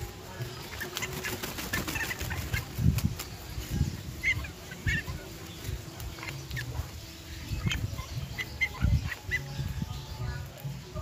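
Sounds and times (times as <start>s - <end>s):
bird flapping wet wings: 0.6s - 3.5s.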